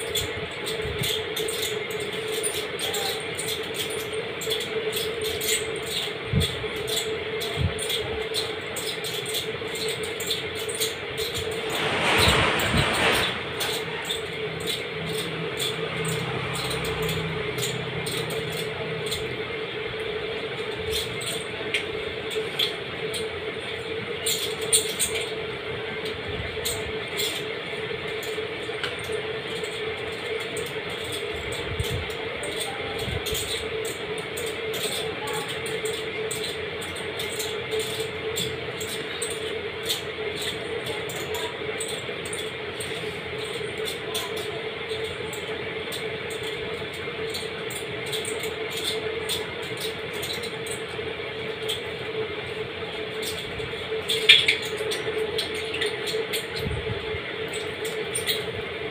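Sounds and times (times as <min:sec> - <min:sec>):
steady hum: 0:07.6 - 0:18.8.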